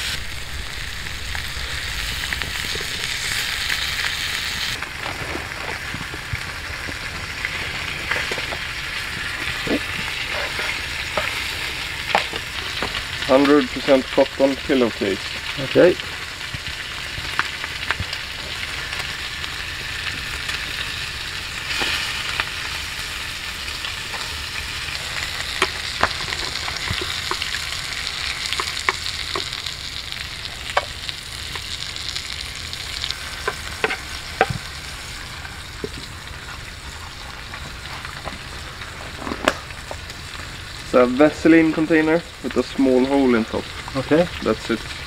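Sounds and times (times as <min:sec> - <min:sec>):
campfire wood crackling: 0:00.0 - 0:45.0
food sizzling in frying pan: 0:00.0 - 0:45.0.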